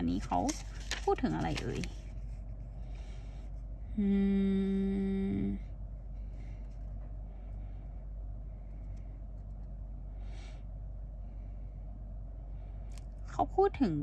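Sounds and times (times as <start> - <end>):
low background hum: 0.0 - 14.0
woman humming: 3.9 - 5.8.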